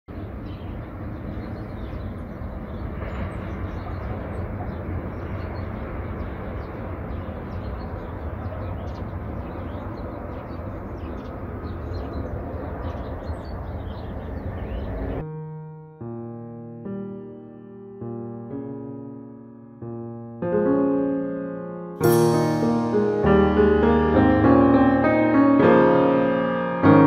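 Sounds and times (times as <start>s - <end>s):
small birds chirping: 0.1s - 15.2s
steady low rumble: 0.1s - 15.2s.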